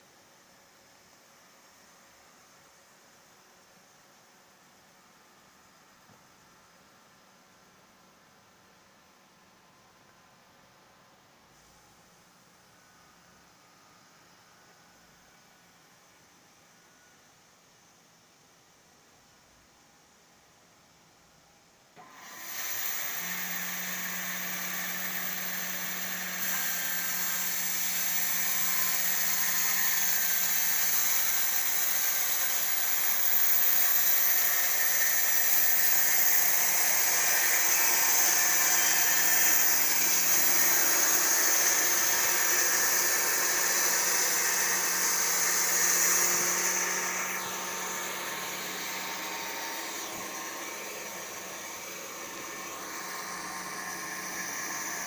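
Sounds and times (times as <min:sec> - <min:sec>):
electric motor hum: 0:22.0 - 0:55.0.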